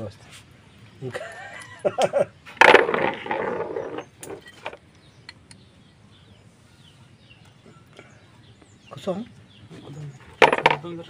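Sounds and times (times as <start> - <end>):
metal tools clinking: 2.6 - 4.8.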